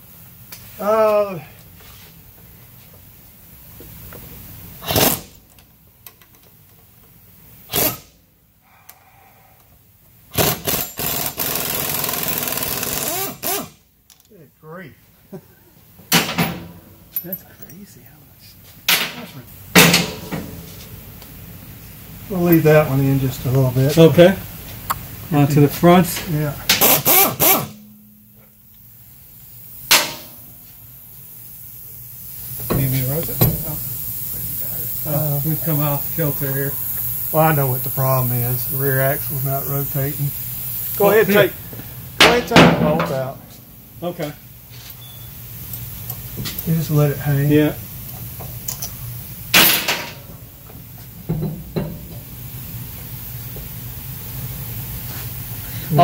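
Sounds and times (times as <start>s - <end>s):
air impact wrench hammering: 4.8s - 5.4s, 7.6s - 8.2s, 10.3s - 13.8s, 18.9s - 20.6s, 26.6s - 30.5s, 32.2s - 35.1s, 48.4s - 50.5s, 51.2s - 52.5s
low background noise: 13.8s - 56.0s.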